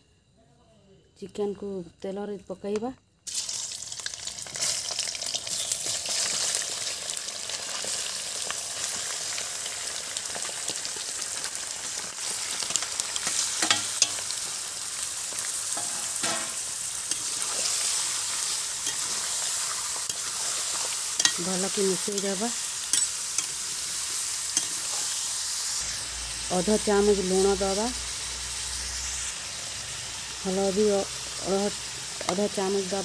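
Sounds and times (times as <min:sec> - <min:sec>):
meat sizzling in hot oil: 0:03.3 - 0:33.0
steel spoon clinking and scraping: 0:13.2 - 0:14.3, 0:15.7 - 0:25.3.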